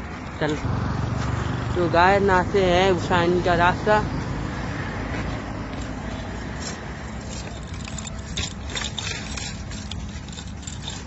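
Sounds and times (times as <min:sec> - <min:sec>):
bike clicks and rattles: 0:05.6 - 0:11.0.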